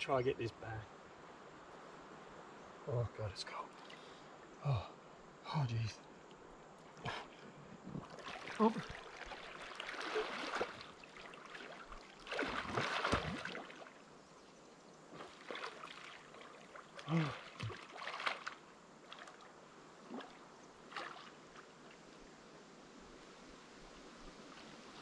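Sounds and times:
water lapping: 3.6s - 4.3s, 6.8s - 14.3s, 15.0s - 22.2s
swimming strokes splashing: 8.0s - 14.0s, 15.1s - 21.6s.

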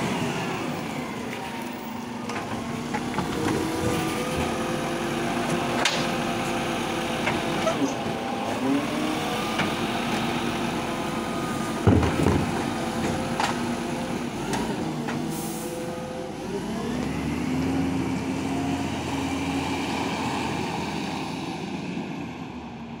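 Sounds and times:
garbage truck diesel engine: 0.0s - 23.0s
heavy bin thump: 11.8s - 12.7s
air brake hiss: 15.3s - 15.8s.

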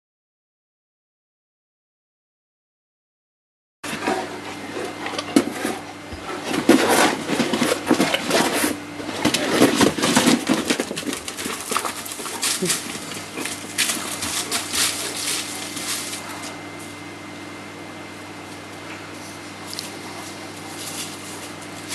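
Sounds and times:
dogs growling: 3.9s - 16.9s, 18.9s - 21.9s
paws scrabbling on gravel: 3.9s - 17.0s, 18.6s - 21.9s.

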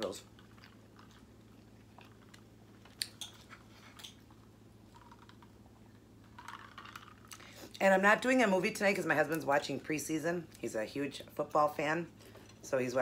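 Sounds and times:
steady low hum: 0.0s - 13.0s
person eating and sipping: 0.2s - 7.8s.

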